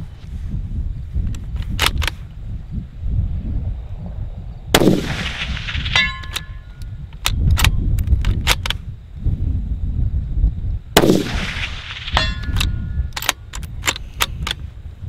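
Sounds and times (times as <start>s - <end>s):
rifle shot: 4.7s - 6.6s, 11.0s - 12.8s
metallic ring of steel target: 5.7s - 6.8s, 11.7s - 13.1s
rifle bolt clacking: 12.1s - 14.6s.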